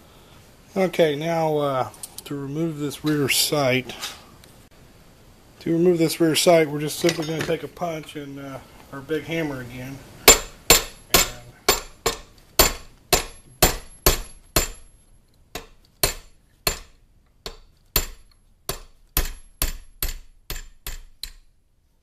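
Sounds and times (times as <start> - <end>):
hammer striking steel punch: 10.2 - 14.9, 15.6 - 21.4.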